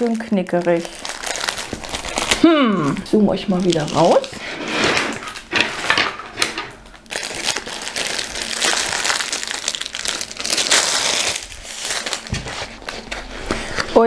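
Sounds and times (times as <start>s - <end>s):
plastic film crinkling: 0.0s - 14.0s.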